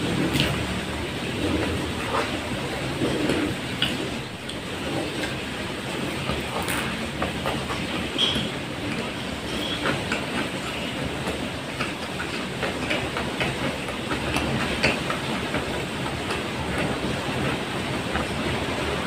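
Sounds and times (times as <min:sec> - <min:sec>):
chewing with wet mouth clicks: 0:00.3 - 0:00.6.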